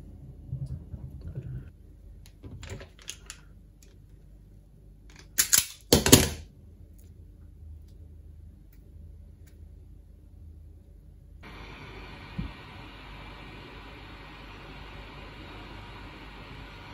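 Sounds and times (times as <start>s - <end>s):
handling and small clicks: 2.2s - 4.2s, 5.1s - 6.1s.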